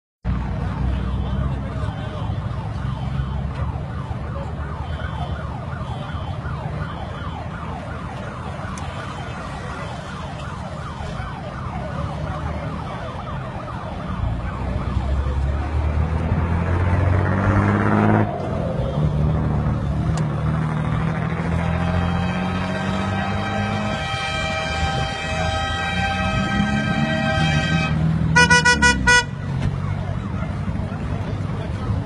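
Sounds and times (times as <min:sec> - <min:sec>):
engine and traffic rumble: 0:00.2 - 0:32.0
police siren yelping: 0:02.3 - 0:16.4.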